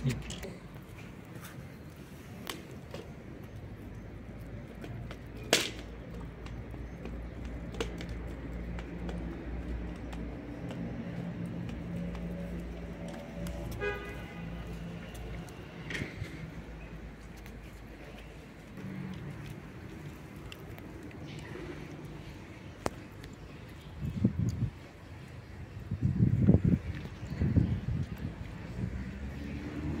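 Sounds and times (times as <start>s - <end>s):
cats chewing wet food: 17.4s - 25.4s.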